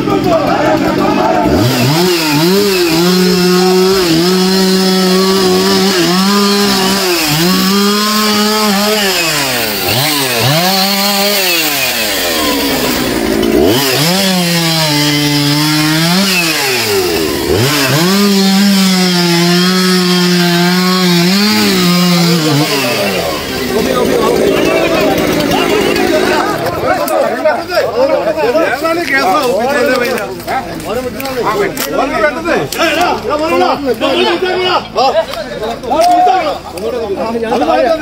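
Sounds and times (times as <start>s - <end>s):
chainsaw cutting wood: 0.0s - 27.4s.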